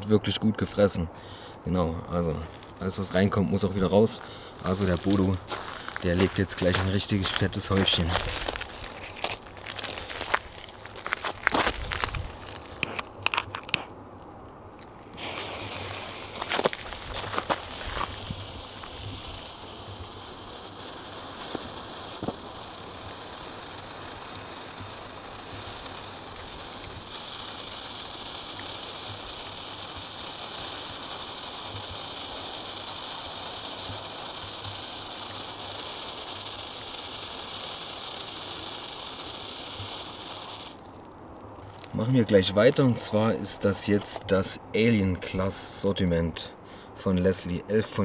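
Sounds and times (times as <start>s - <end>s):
firework hissing: 2.5s - 44.6s.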